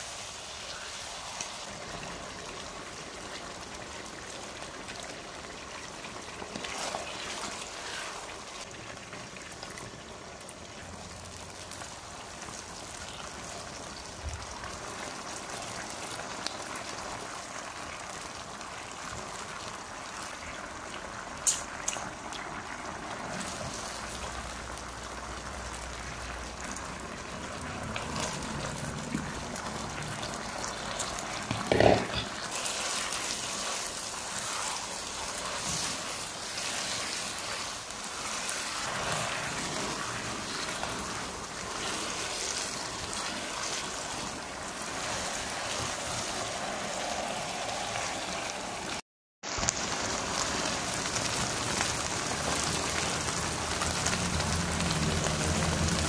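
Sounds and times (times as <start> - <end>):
sauce sizzling in a wok: 0.0 - 56.0
spatula scraping and knocking wok: 31.5 - 37.7.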